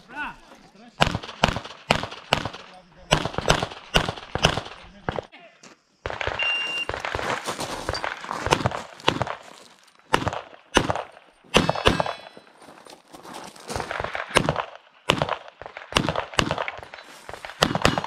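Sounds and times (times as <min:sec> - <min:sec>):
pistol shots: 0:01.0 - 0:05.3, 0:06.0 - 0:07.4, 0:10.1 - 0:12.3, 0:13.8 - 0:18.0
metallic ring of steel target: 0:11.5 - 0:12.5.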